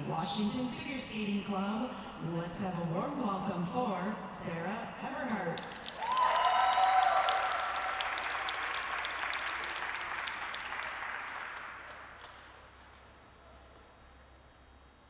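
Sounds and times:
audience applauding: 5.6 - 12.6.

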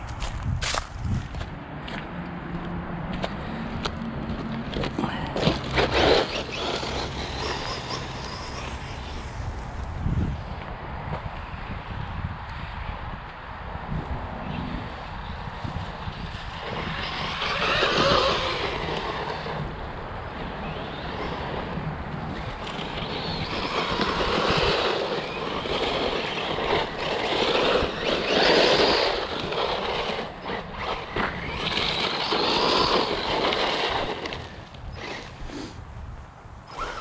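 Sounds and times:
toy rc car driving over gravel: 4.3 - 11.3, 14.4 - 35.8, 36.6 - 37.0.

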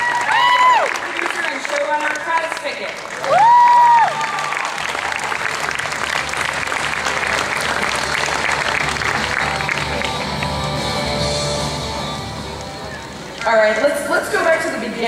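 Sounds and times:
large audience applauding: 0.0 - 11.6
music over speakers: 5.9 - 13.7.

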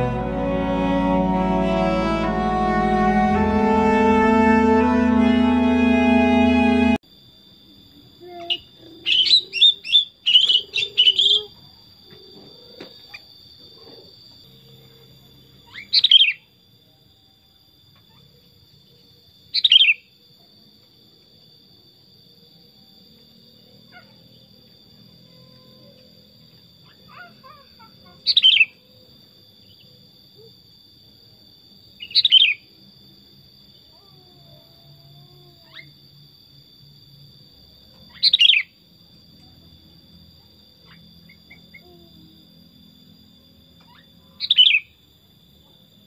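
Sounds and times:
bird singing: 8.2 - 20.1, 25.4 - 30.1, 32.0 - 32.7, 37.9 - 38.8, 40.4 - 42.1, 43.6 - 45.0.

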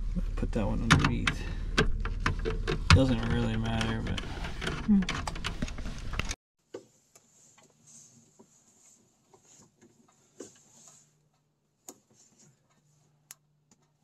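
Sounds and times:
clicking and handling noise: 0.9 - 7.8.

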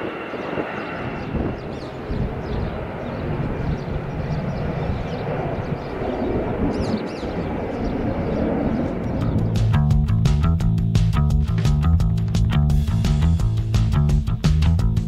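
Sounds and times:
distant jet engine rumble: 0.0 - 14.0
music: 9.2 - 15.0.

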